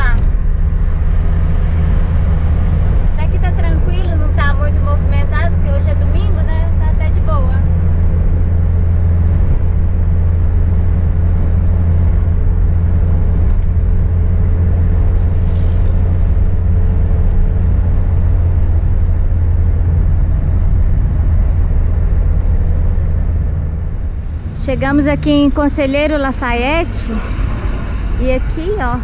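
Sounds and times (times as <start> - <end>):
faint steady hum: 0.0 - 29.0
van engine and road drone: 0.0 - 29.0.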